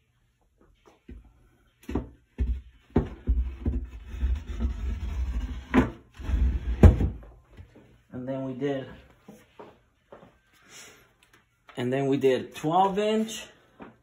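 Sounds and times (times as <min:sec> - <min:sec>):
board scraping and rubbing: 0:03.2 - 0:07.2.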